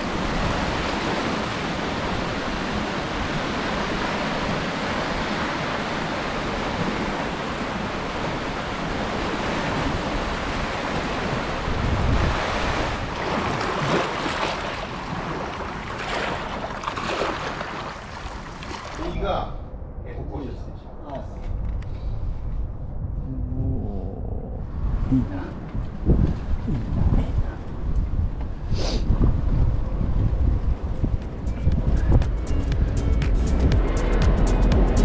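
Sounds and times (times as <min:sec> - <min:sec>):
water rushing past rocks: 0:00.0 - 0:19.2
wind buffeting microphone: 0:00.0 - 0:35.0
small waves washing over pebbles: 0:12.3 - 0:19.0.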